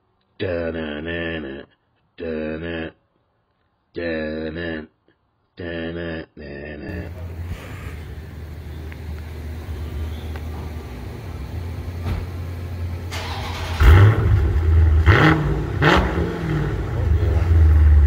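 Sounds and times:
car engine idling: 6.9 - 18.0
engine revving: 6.9 - 18.0.

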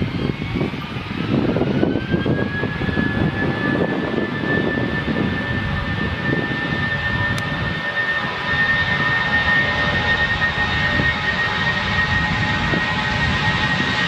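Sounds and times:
jet engines roaring on takeoff: 0.0 - 14.0.

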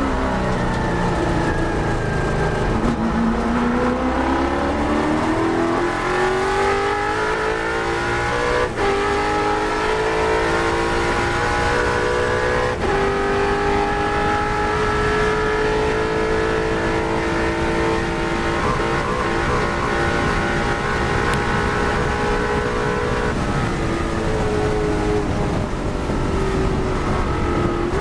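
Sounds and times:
race car engine at full throttle: 0.0 - 28.0
wind and road noise: 0.0 - 28.0.

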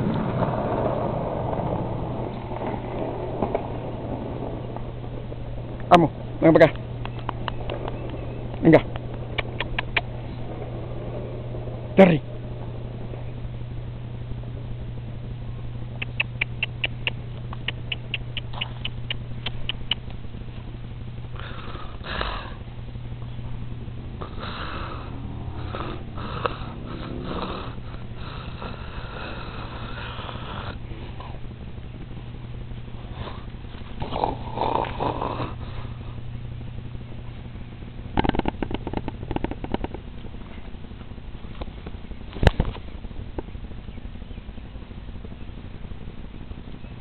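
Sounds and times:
steady low hum: 0.0 - 47.0
scattered clicks: 6.7 - 10.1, 15.9 - 20.2
puppy sniffing and snuffling: 9.3 - 10.3, 16.0 - 20.7.

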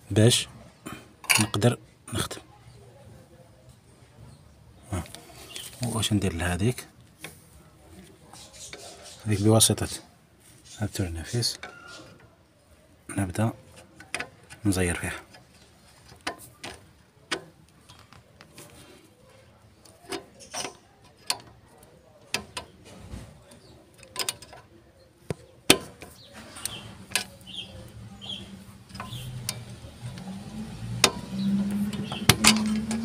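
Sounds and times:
vehicle engine hum: 26.3 - 33.0.

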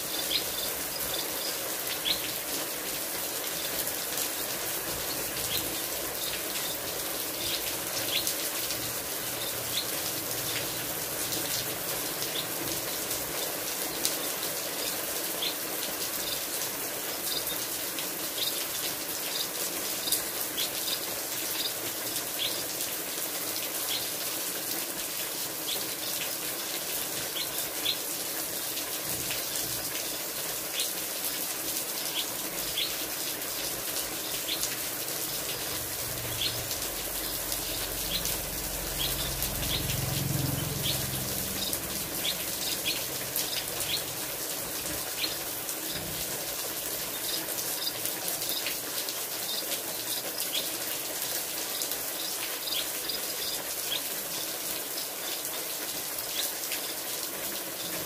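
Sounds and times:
rain hissing: 0.0 - 58.0
small birds chirping: 0.1 - 2.4, 5.0 - 8.4, 27.4 - 28.0, 32.0 - 33.0, 34.0 - 34.8, 36.2 - 40.0, 40.6 - 46.2.

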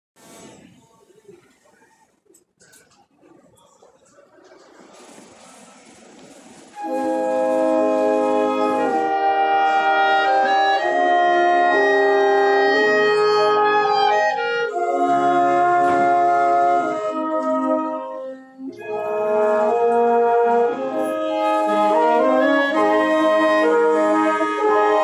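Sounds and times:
wind ensemble playing chords: 6.8 - 25.0.

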